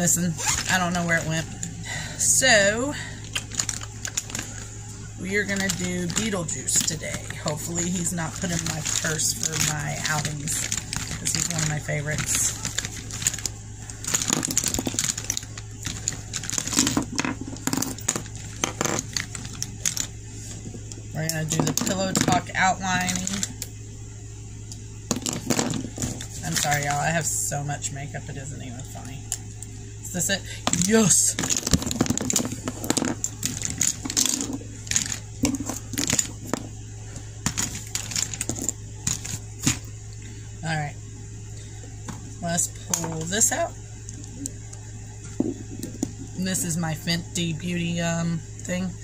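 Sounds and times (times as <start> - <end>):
steady low hum: 0.0 - 49.0
crinkling and rustling packaging: 0.4 - 1.3, 3.3 - 23.6, 25.1 - 27.0, 30.7 - 39.9
plastic cases clicking and rattling: 3.3 - 4.6, 5.4 - 20.1, 25.1 - 26.8, 30.7 - 36.7, 37.4 - 39.9.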